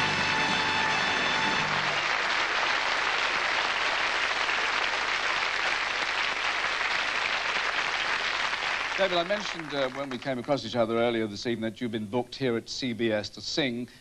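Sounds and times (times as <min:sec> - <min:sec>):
music cue: 0:00.0 - 0:02.0
audience applauding: 0:00.0 - 0:10.6.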